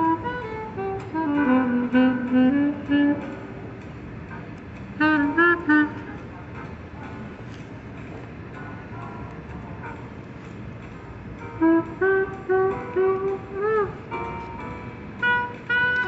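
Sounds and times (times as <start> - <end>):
solo instrument slow melody: 0.0 - 7.6, 11.4 - 16.0
outdoor background noise: 0.0 - 16.0.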